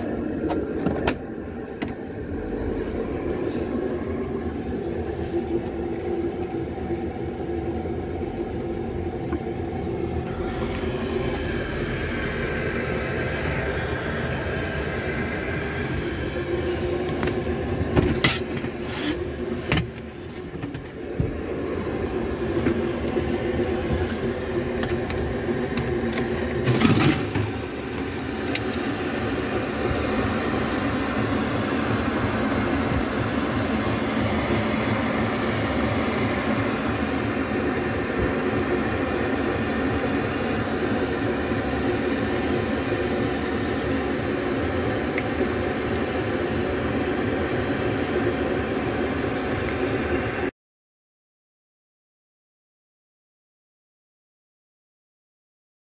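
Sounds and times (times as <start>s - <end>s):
mechanical drone with held tones: 0.0s - 50.5s.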